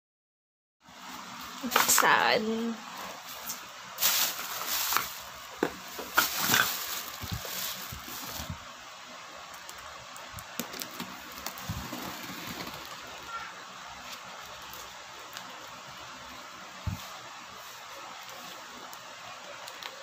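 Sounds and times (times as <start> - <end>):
tape and cardboard rustling: 3.3 - 8.7, 9.5 - 13.4.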